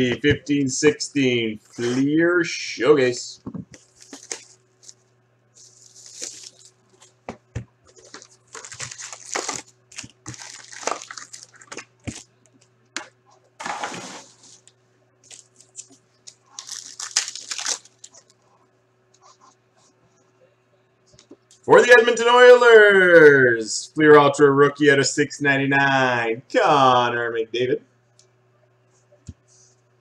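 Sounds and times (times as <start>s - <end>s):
faint steady hum: 0.0s - 30.0s
foil wrappers tearing and crinkling: 3.8s - 5.0s, 5.6s - 7.2s, 7.9s - 12.3s, 14.6s - 18.4s.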